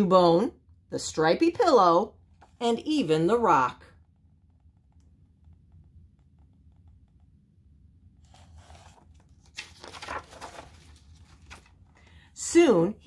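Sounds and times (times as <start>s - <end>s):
book pages rustling: 8.2s - 12.0s.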